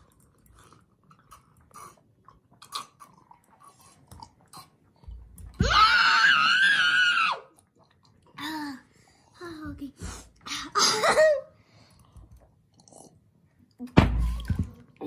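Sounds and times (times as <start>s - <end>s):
children slurping water: 13.8s - 15.0s.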